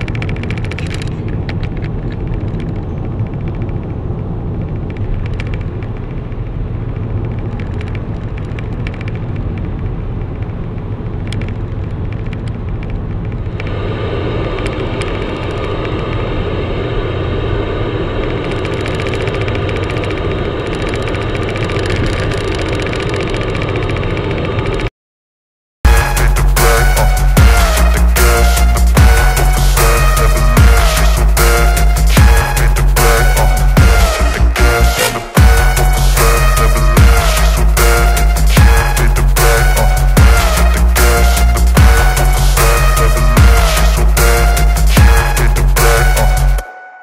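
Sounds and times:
radio knob turning: 0:00.0 - 0:02.7
car road and engine noise: 0:00.0 - 0:24.9, 0:25.9 - 0:46.8
radio static hiss: 0:13.6 - 0:22.5.

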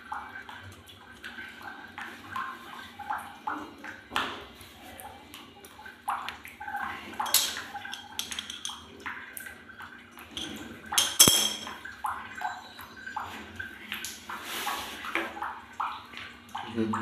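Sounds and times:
metal parts clinking against pliers: 0:10.4 - 0:11.7.

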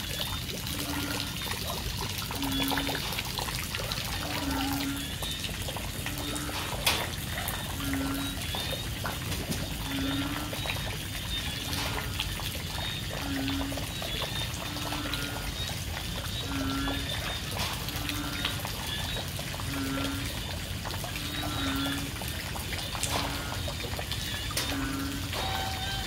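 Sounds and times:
higher frog croaks: 0:00.7 - 0:01.5, 0:02.1 - 0:08.7, 0:09.8 - 0:10.8, 0:13.0 - 0:18.7, 0:19.6 - 0:20.4, 0:21.1 - 0:22.3, 0:24.6 - 0:26.0
frog low croak: 0:04.0 - 0:05.2, 0:06.0 - 0:08.6, 0:16.4 - 0:17.3, 0:19.6 - 0:20.4
heavy rain: 0:16.3 - 0:26.0.

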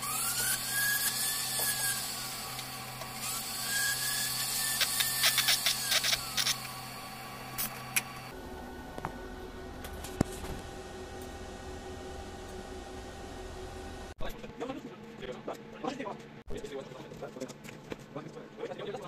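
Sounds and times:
steady low hum: 0:05.2 - 0:19.0.

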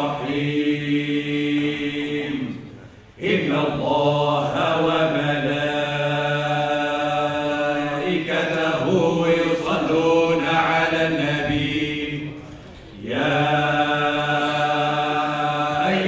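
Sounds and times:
male voices chanting: 0:00.0 - 0:16.0.

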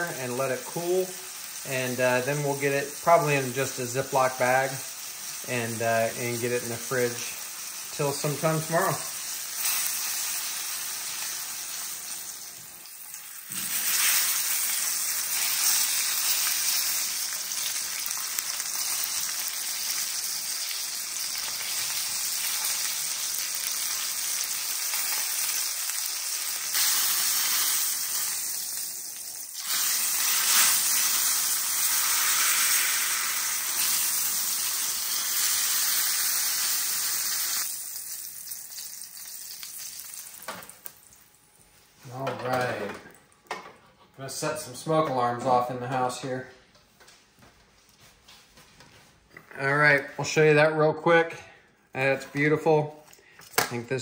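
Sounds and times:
meat sizzling in oil: 0:00.2 - 0:41.3.

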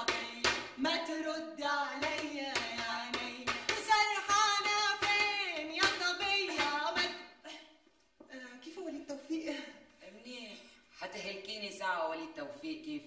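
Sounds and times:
hand claps: 0:00.0 - 0:00.8, 0:02.0 - 0:07.2
woman singing: 0:00.0 - 0:07.4.

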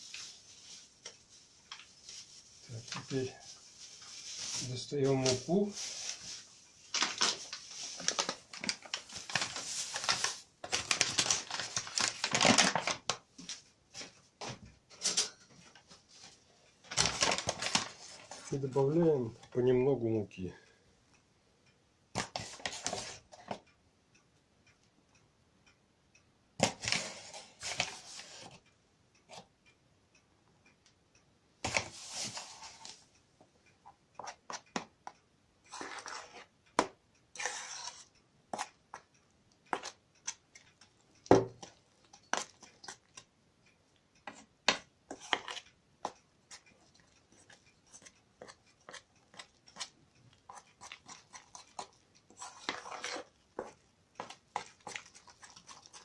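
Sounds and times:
plastic bag rustling: 0:00.0 - 0:13.1, 0:16.9 - 0:18.6
metal spoon scraping a bowl: 0:35.7 - 0:36.5, 0:37.4 - 0:38.7, 0:45.1 - 0:56.0.

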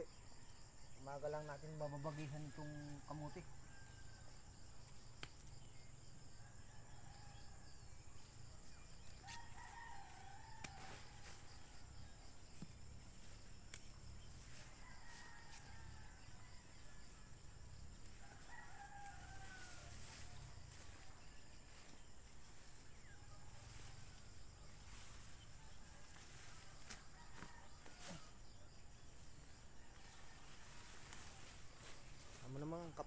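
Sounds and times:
rooster crowing faintly: 0:09.2 - 0:12.6, 0:14.1 - 0:22.1, 0:22.9 - 0:28.7.

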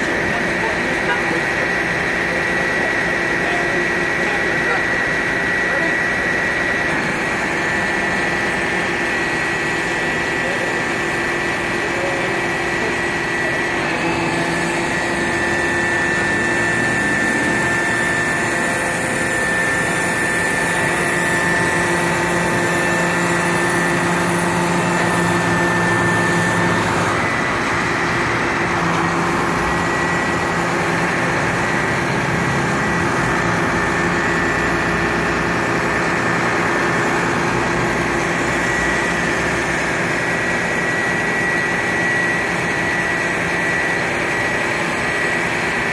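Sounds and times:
thin steady whine: 0:00.0 - 0:45.9
diesel truck engine running: 0:11.9 - 0:40.6.

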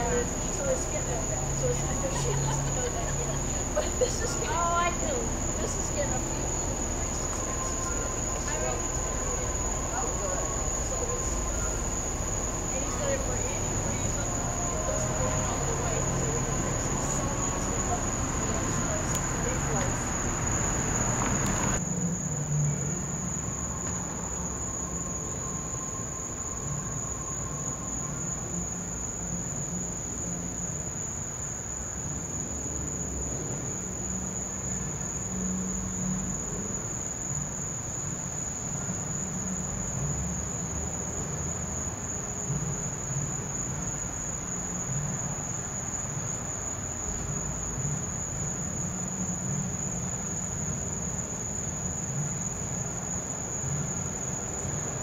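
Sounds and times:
low uneven rumble: 0:00.0 - 0:21.9
crickets trilling: 0:00.0 - 0:55.0.

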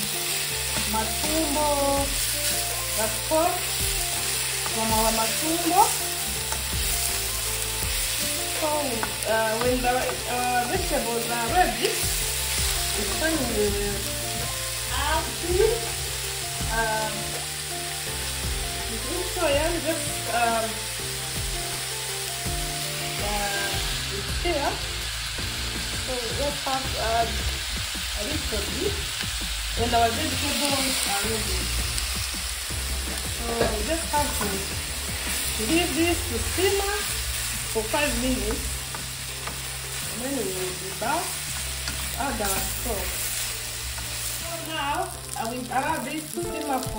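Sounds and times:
food sizzling in a wok: 0:00.0 - 0:46.9
spatula scraping pan: 0:35.2 - 0:44.4.

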